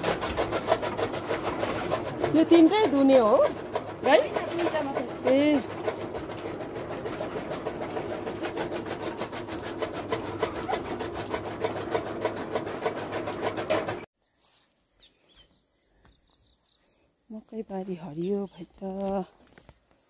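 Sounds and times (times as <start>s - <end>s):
fast rhythmic rasping: 0.0s - 14.1s
faint insect chirping: 14.2s - 20.0s.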